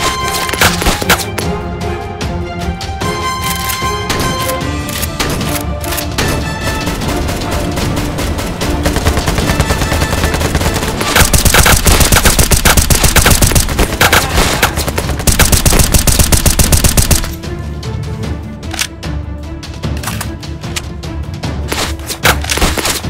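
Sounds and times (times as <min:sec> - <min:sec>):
action background music: 0:00.0 - 0:23.0
automatic gunfire: 0:08.9 - 0:17.3.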